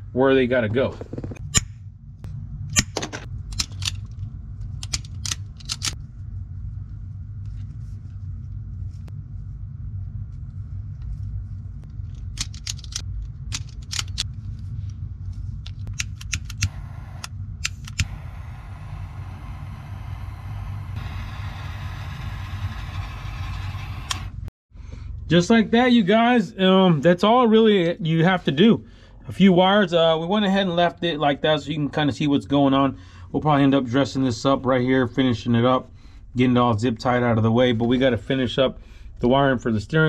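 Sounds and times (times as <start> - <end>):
steady low rumble: 0.0 - 40.0
wire crimping tool clicks and snaps: 4.8 - 6.0, 12.2 - 14.3, 15.6 - 18.1
steady hiss: 16.7 - 17.3, 18.0 - 24.5.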